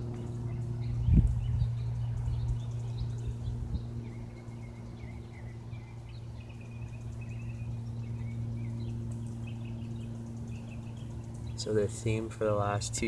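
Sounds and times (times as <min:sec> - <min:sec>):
light aircraft droning overhead: 0:00.0 - 0:13.0
small birds chirping: 0:00.0 - 0:13.0.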